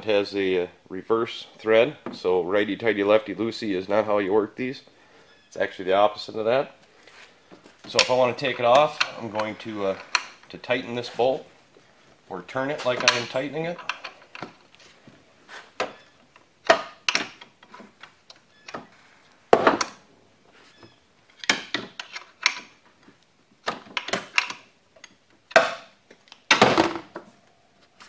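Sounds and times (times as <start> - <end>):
hand tools clinking on metal: 7.9 - 11.0, 12.7 - 14.5.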